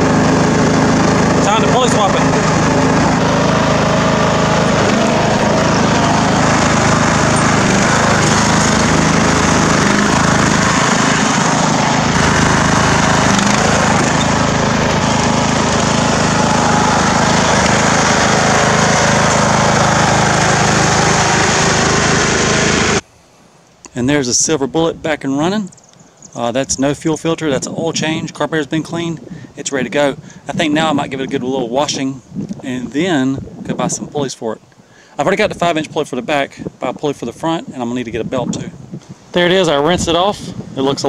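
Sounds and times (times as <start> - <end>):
riding mower engine running: 0.0 - 23.1.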